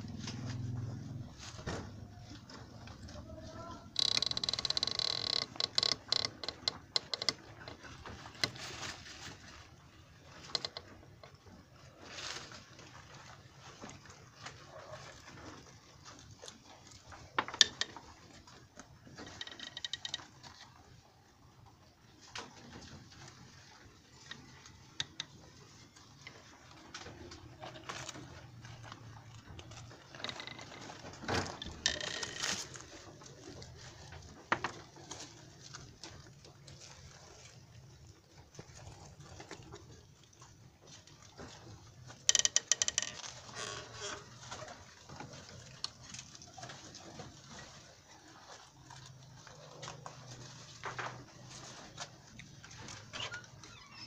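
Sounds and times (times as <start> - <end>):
rabbits chewing hay: 14.6 - 17.4, 43.6 - 53.2.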